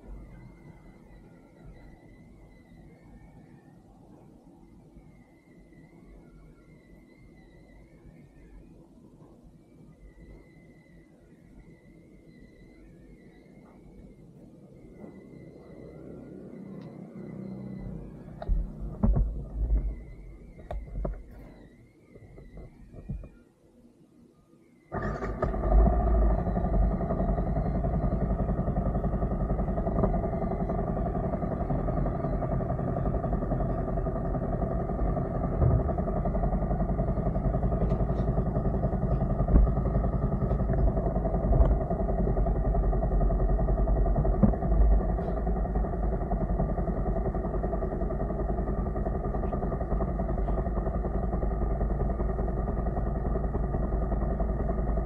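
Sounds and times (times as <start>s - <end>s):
motorcycle engine idling: 0.0s - 2.9s, 13.4s - 23.3s, 24.9s - 55.0s.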